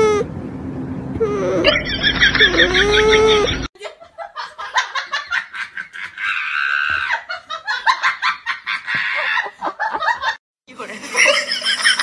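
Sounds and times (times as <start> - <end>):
person laughing hard: 1.6 - 10.4.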